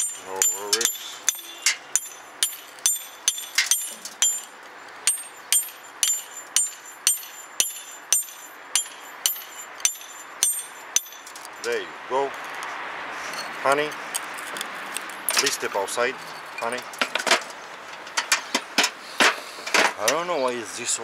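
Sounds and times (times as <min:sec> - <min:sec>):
hammer striking chisel on stone: 0:00.0 - 0:04.5, 0:05.1 - 0:11.4.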